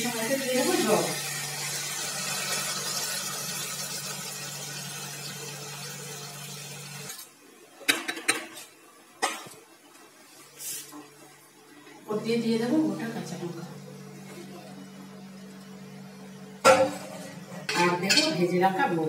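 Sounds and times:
water sizzling in a hot wok: 0:00.0 - 0:07.3.

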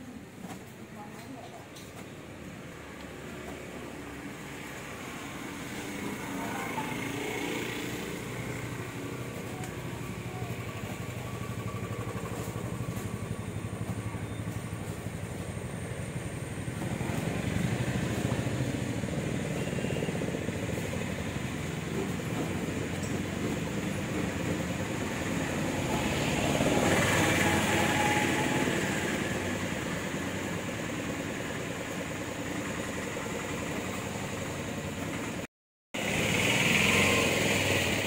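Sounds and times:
motor engine running: 0:05.7 - 0:27.7.

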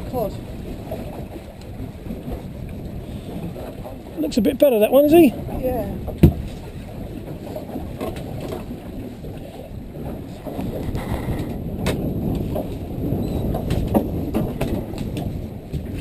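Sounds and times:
boat rumble: 0:00.0 - 0:16.0
wind on microphone: 0:00.0 - 0:16.0
sharp knocks: 0:06.1 - 0:06.5.

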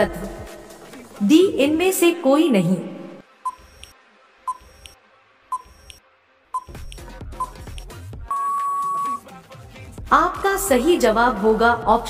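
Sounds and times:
short high electronic beeps: 0:03.5 - 0:03.9, 0:04.5 - 0:06.0, 0:06.6 - 0:07.7, 0:08.3 - 0:09.2.

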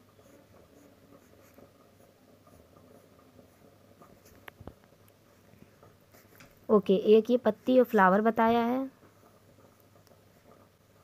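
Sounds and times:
pencil scratching on paper: 0:00.0 - 0:04.5, 0:05.3 - 0:06.4.

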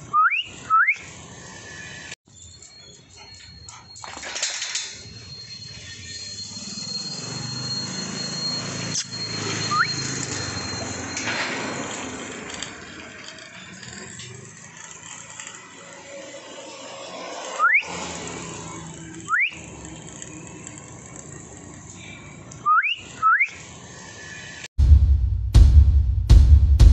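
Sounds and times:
person whistling rising whistles: 0:00.1 - 0:01.1, 0:05.4 - 0:10.7, 0:17.6 - 0:17.9, 0:22.6 - 0:23.6.

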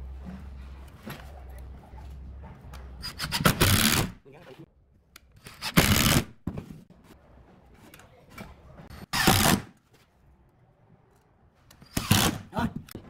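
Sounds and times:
impact driver driving screws: 0:05.4 - 0:06.3, 0:09.0 - 0:09.7, 0:11.8 - 0:12.4.

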